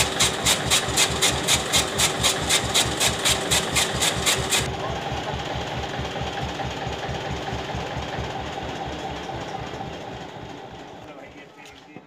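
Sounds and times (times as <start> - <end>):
chaff cutter whirring: 0.0 - 4.7
tractor engine throbbing: 0.0 - 11.3.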